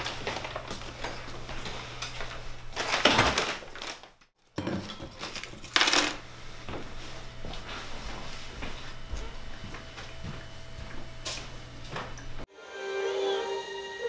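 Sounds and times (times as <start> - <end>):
keys clattering onto countertop: 4.6 - 6.2.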